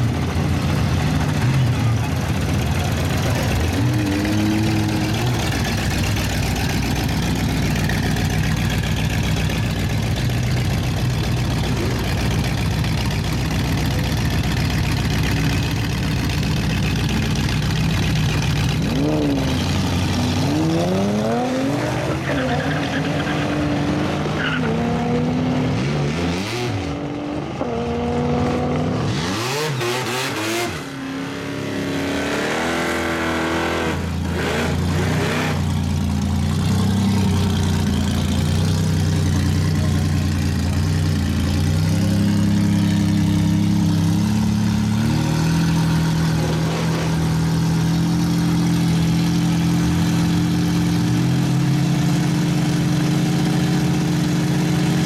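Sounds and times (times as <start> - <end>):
car engines idling loudly: 0.0 - 21.2, 34.0 - 55.0
race car engines accelerating: 0.0 - 55.0.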